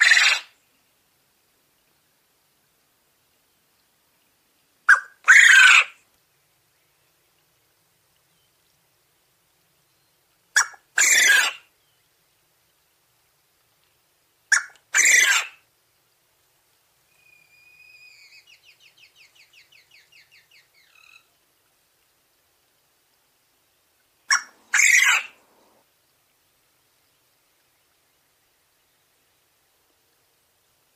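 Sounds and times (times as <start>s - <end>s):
quail crowing: 0.0s - 0.5s, 4.9s - 6.0s, 10.6s - 11.6s, 14.5s - 15.6s, 24.3s - 25.8s.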